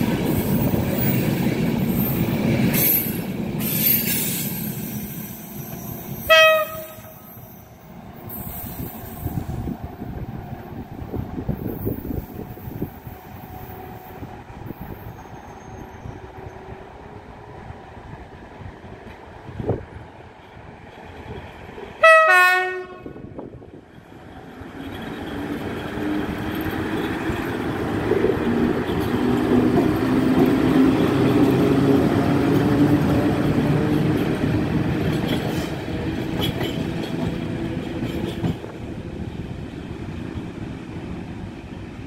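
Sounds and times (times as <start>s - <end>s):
locomotive horn blast: 6.2s - 7.2s, 22.0s - 23.2s
wheels clacking over rail joints: 24.0s - 41.2s.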